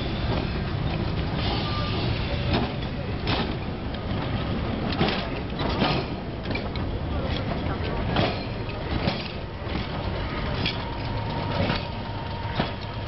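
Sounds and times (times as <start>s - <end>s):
tram rumbling on rails: 0.0s - 13.0s.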